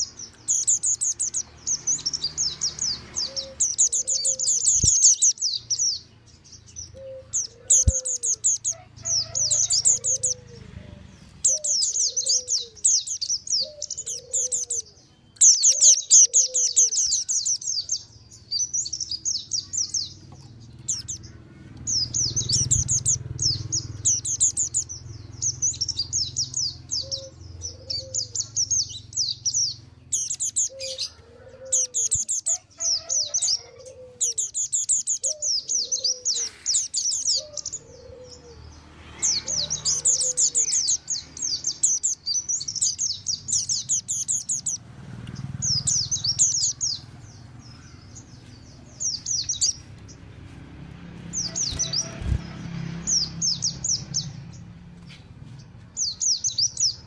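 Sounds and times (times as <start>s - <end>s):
birds chattering trills: 0.0s - 57.0s.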